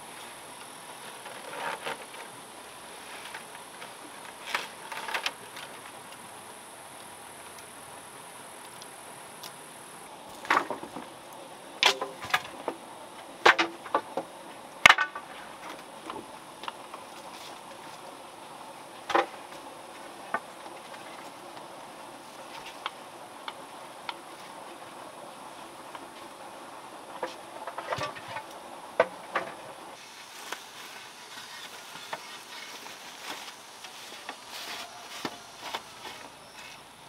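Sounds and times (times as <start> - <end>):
insects buzzing: 0.0 - 37.0
knocks and clicks on bamboo: 13.4 - 15.3.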